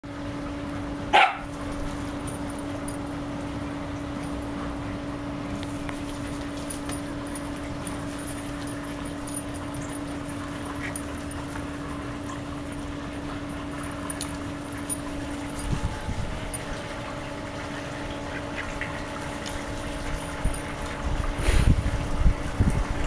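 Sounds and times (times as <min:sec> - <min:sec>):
steady low hum: 0:00.1 - 0:23.0
dog barking: 0:01.1 - 0:01.5.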